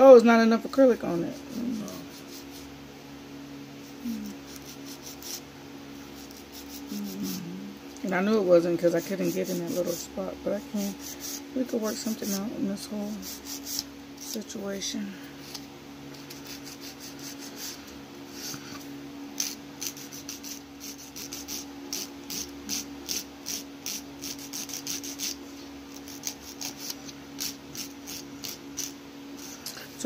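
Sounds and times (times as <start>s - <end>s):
steady low hum: 0.0s - 30.0s
nail file rasping on fingernail: 1.2s - 2.7s, 4.1s - 5.4s, 6.2s - 7.5s, 8.8s - 10.1s, 10.8s - 12.5s, 13.1s - 14.4s, 15.4s - 17.8s, 19.4s - 29.9s.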